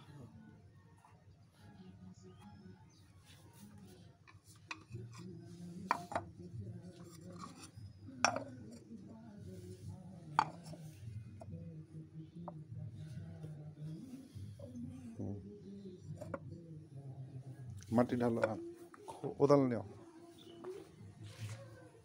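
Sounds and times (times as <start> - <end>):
clay lids clinking on pots: 7.1 - 8.6, 10.4 - 10.8.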